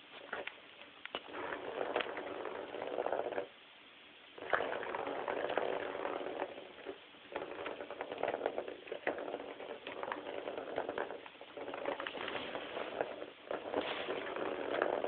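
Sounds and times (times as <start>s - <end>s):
ball rattling around plastic track: 0.0s - 3.6s, 4.4s - 15.0s.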